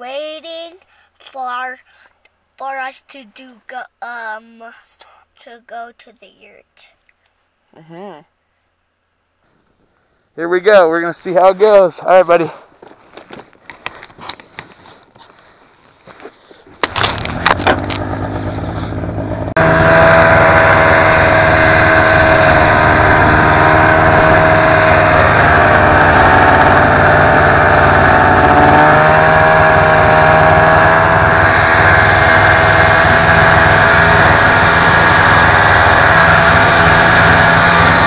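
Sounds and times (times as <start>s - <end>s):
snowmobile engine running: 16.8s - 38.0s.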